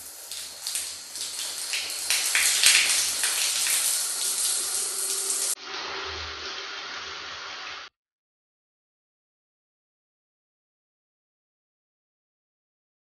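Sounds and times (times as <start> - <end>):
shower spraying on tiled floor: 0.0 - 7.9.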